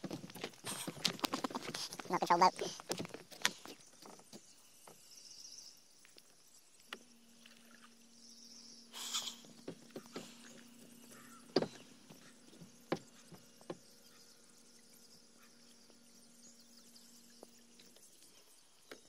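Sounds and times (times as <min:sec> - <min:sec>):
footsteps on wooden planks: 0:00.0 - 0:05.1, 0:09.4 - 0:13.9
electric trolling motor hum: 0:00.0 - 0:19.0
high insect buzz: 0:00.4 - 0:19.0.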